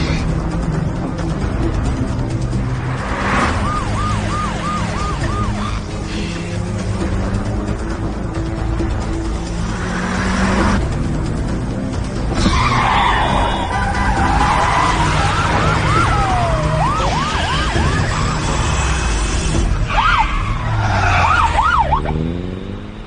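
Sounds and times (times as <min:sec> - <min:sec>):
loud engine and road noise: 0:00.0 - 0:23.0
car tyres screeching: 0:12.3 - 0:22.4.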